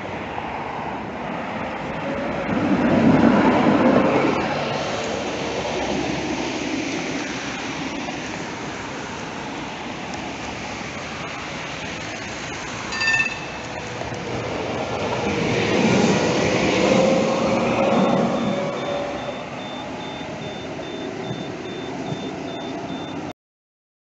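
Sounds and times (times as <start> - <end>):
tram wheels rumbling on rail: 0.0 - 23.3
short high ding: 12.9 - 13.8.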